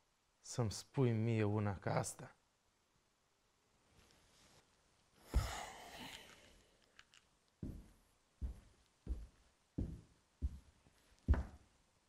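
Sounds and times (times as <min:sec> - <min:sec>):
footsteps walking: 0:07.6 - 0:11.7.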